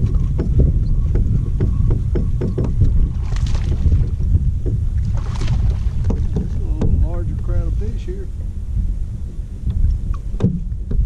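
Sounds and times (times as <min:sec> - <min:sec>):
waves lapping against boat hull: 0:00.0 - 0:11.0
wind rumbling on microphone: 0:00.0 - 0:11.0.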